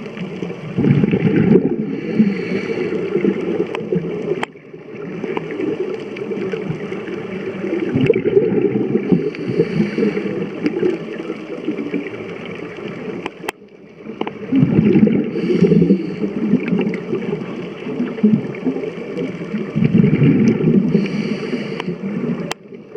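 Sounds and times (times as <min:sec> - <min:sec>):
gurgling exhaled bubbles: 0:00.0 - 0:22.9
regulator inhale hiss: 0:01.8 - 0:03.4, 0:09.0 - 0:10.7, 0:15.2 - 0:16.6, 0:20.8 - 0:22.4.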